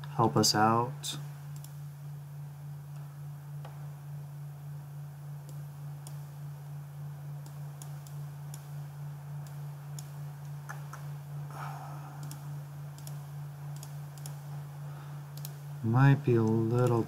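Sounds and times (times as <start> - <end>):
low electrical hum: 0.0 - 17.0
computer mouse clicking: 1.5 - 1.8, 5.4 - 6.3, 7.4 - 8.8, 9.4 - 11.1, 12.2 - 14.5, 15.3 - 15.6, 16.4 - 17.0.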